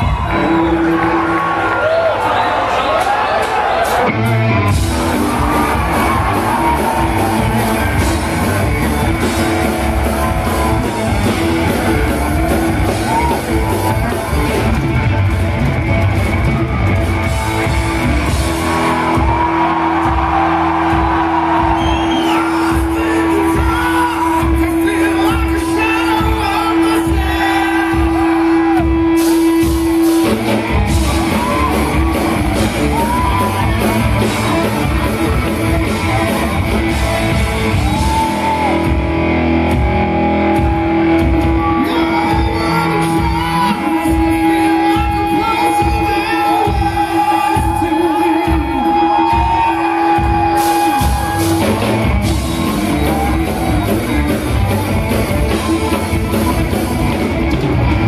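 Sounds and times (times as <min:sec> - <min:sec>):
live rock band playing: 0:00.0 - 0:02.5, 0:03.1 - 0:58.0
man singing lead vocal: 0:41.6 - 0:50.1.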